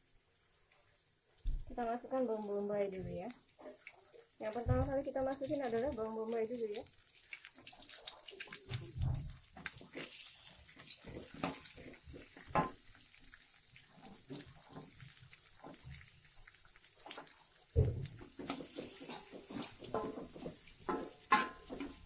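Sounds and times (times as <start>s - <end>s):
onion sizzling in hot pan: 0.0s - 22.0s
spatula knocking and scraping pan: 10.8s - 13.0s, 17.0s - 22.0s.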